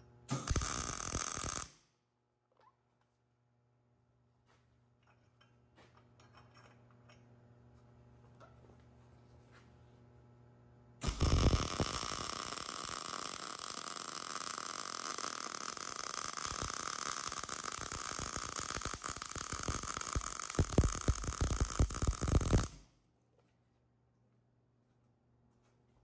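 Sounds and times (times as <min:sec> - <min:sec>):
welding arc crackling hiss: 0:00.3 - 0:01.8, 0:11.0 - 0:22.8.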